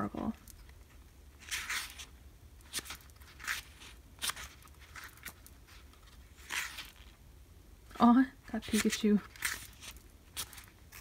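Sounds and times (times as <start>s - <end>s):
pages flipping: 1.4s - 7.2s, 8.6s - 11.0s.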